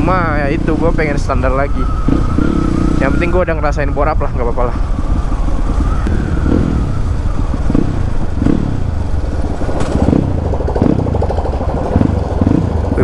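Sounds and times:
wind rumble on microphone: 0.0s - 13.0s
motorbike engine running slowly: 4.8s - 13.0s.

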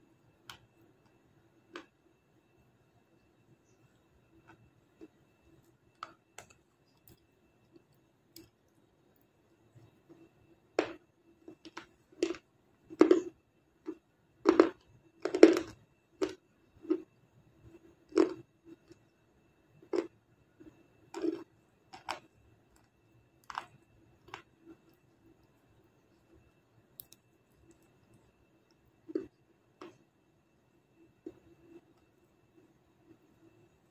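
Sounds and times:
faint steady hum: 0.0s - 33.9s
crunchy food chewing: 10.8s - 17.1s, 18.0s - 19.1s, 19.8s - 20.2s, 21.1s - 26.4s, 27.0s - 30.0s.

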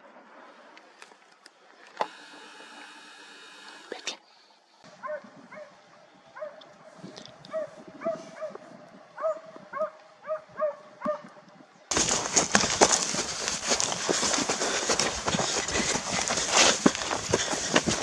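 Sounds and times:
dogs yelping: 11.9s - 18.0s.

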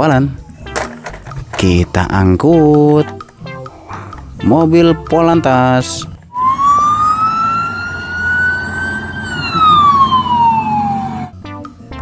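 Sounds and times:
police siren wailing: 6.3s - 11.4s.

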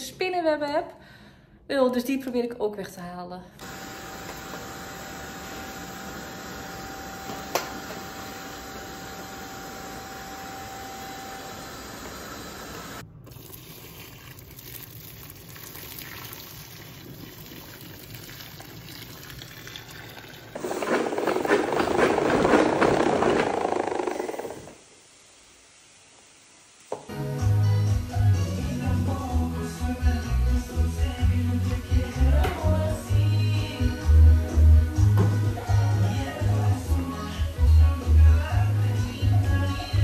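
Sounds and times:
spin mop whirring: 3.6s - 13.0s, 20.6s - 24.8s
vacuum cleaner humming: 3.6s - 13.0s, 20.6s - 27.1s
water pouring into bucket: 13.3s - 23.2s.

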